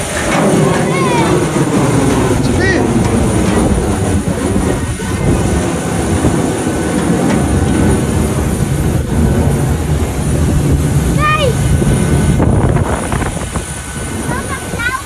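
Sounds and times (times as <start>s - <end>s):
jet airliner noise: 0.0s - 15.0s
wind buffeting microphone: 0.0s - 15.0s.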